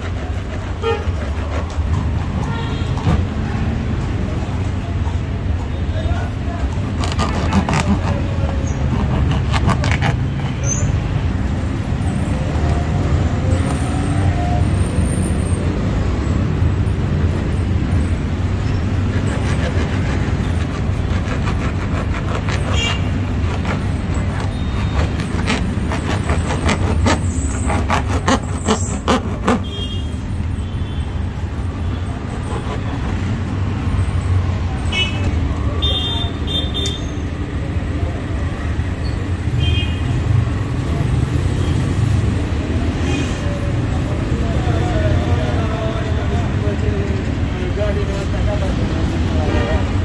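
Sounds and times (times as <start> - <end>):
rumble of passing traffic: 0.0 - 50.0
faint voices: 42.6 - 50.0.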